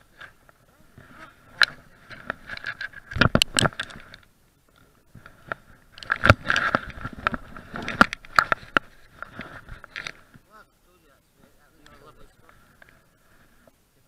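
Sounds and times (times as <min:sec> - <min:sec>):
clothing rustling against microphone: 0:00.0 - 0:04.2, 0:05.1 - 0:10.5.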